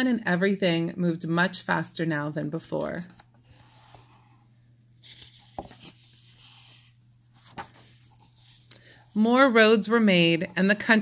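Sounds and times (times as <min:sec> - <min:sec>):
book page turning: 0:05.0 - 0:08.7.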